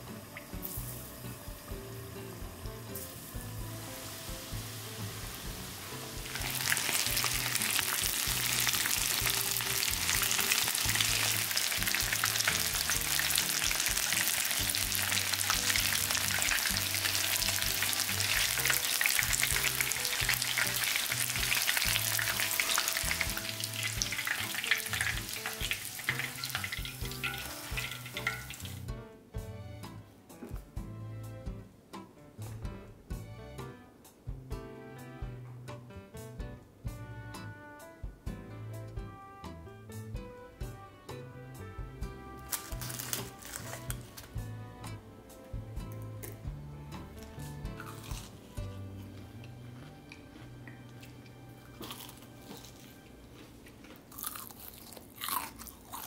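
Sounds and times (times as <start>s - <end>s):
chicken deep-frying in oil: 0.0s - 28.9s, 42.4s - 44.4s
soft background music: 0.0s - 56.0s.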